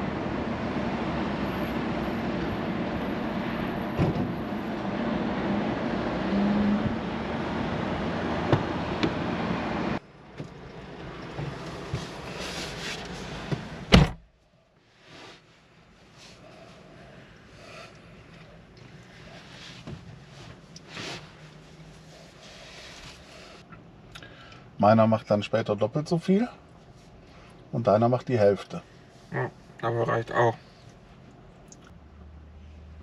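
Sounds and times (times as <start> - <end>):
car tyre and wind rumble: 0.0 - 14.3
loud thump: 4.0 - 4.4, 13.9 - 14.2.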